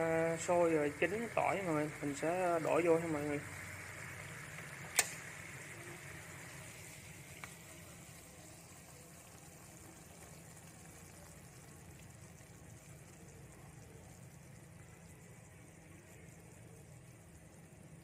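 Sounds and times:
sauce bubbling in frying pan: 0.0 - 18.0
small click: 4.9 - 5.2.

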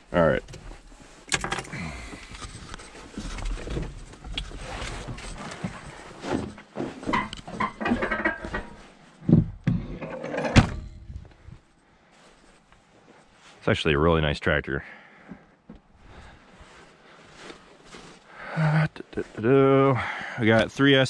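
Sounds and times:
rustling and scuffs of climbing: 0.0 - 1.3, 2.0 - 9.6, 11.0 - 13.7, 15.3 - 18.4.

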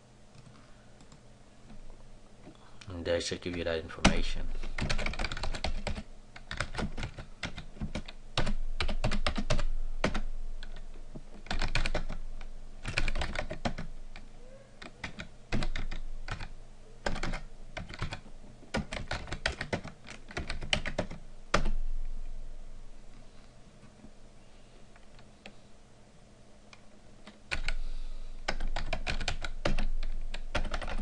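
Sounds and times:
computer keyboard typing: 3.5 - 10.8, 11.4 - 12.2, 12.8 - 21.8, 27.3 - 27.8, 28.4 - 31.0.

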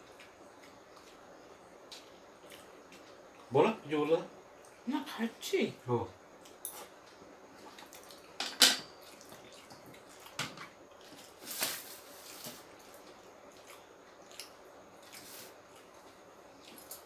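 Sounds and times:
eating clicks and wet smacks: 0.0 - 3.5, 6.4 - 8.4, 9.0 - 11.2, 12.8 - 17.0.

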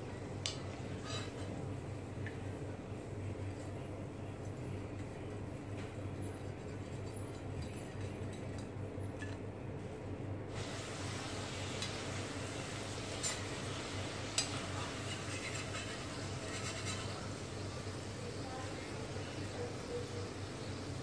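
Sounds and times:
hot oil sizzling: 10.5 - 21.0.

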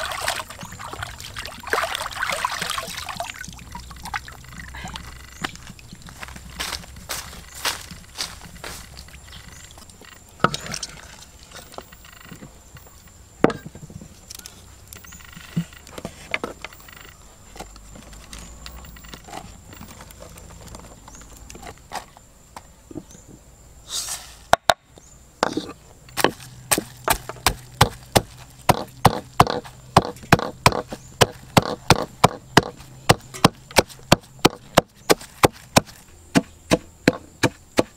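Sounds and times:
wooden pestle pounding in mortar: 26.2 - 37.9.

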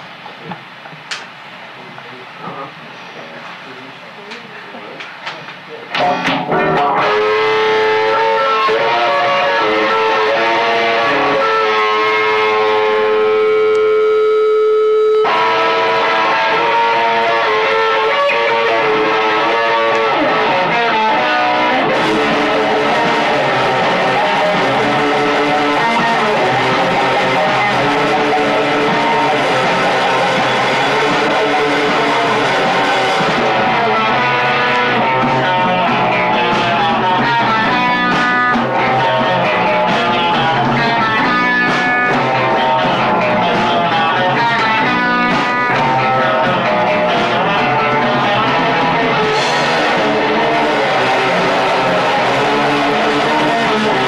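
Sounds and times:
punk rock band playing live: 4.9 - 54.0
drum hits: 20.3 - 54.0.

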